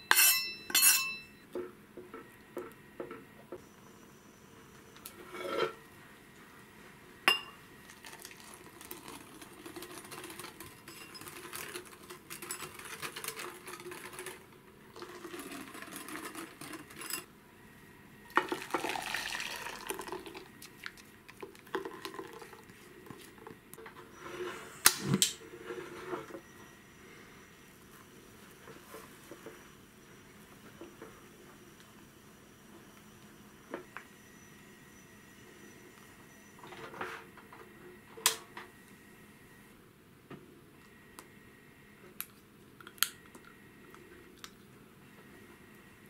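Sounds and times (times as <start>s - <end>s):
pan and utensils clinking: 0.0s - 1.4s, 9.7s - 14.4s, 15.2s - 17.3s
milk pouring into bowl: 7.8s - 11.6s, 15.0s - 16.9s, 18.3s - 23.2s.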